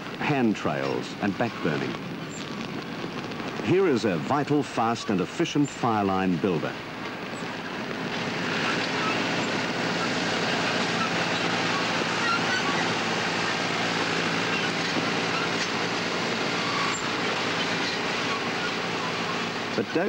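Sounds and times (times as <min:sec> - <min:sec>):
bulldozer diesel engine running: 0:06.8 - 0:20.0.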